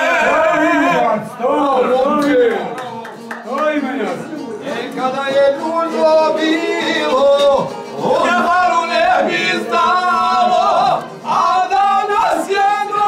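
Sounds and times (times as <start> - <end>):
men singing folk song: 4.6 - 13.0.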